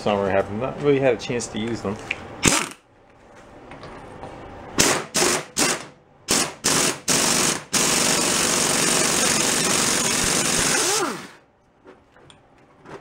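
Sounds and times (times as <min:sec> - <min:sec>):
air impact wrench hammering: 0:02.4 - 0:02.8, 0:04.8 - 0:11.4.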